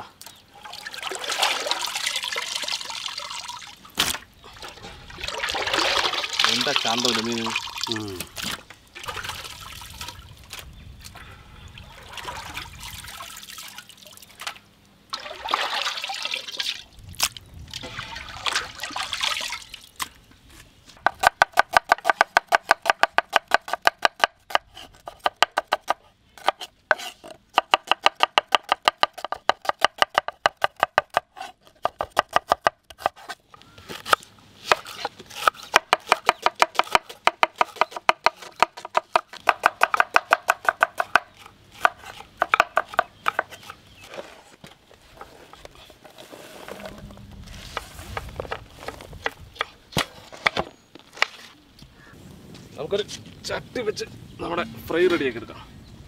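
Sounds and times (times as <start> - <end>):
water splashing and trickling: 0.1 - 10.6, 11.7 - 20.2.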